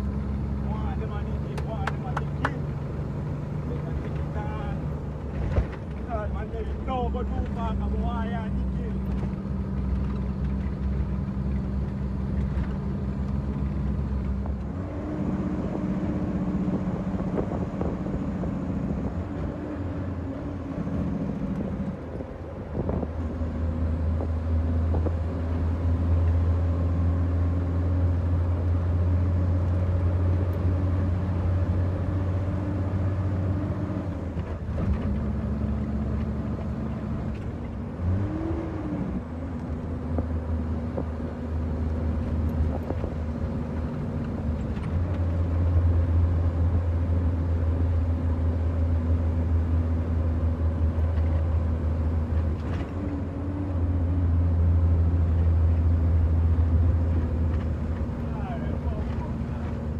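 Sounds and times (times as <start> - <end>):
diesel truck engine droning: 0.0 - 59.9.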